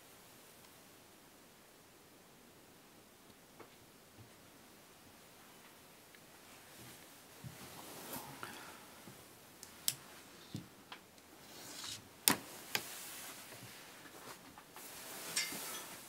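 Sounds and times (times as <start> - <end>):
rustles: 5.4 - 16.0.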